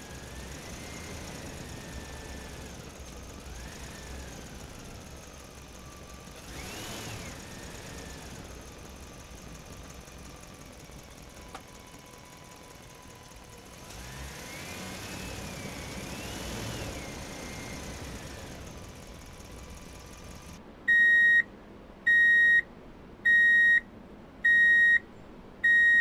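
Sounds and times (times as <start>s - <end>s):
engine revving: 0.0s - 20.6s.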